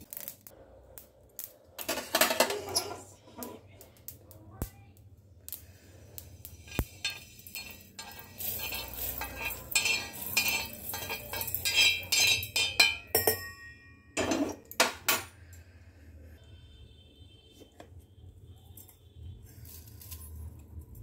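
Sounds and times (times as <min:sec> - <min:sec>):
spoon scraping metal dish: 0:01.9 - 0:03.6, 0:06.6 - 0:13.2.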